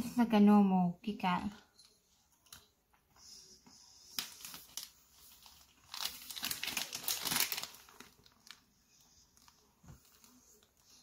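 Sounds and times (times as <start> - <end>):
plastic wrapper crinkling: 4.1 - 11.0.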